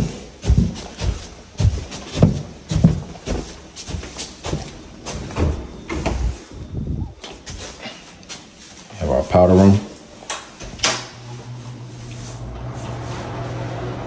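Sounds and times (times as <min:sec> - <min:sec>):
footsteps on stairs and wooden floor: 0:00.0 - 0:06.5.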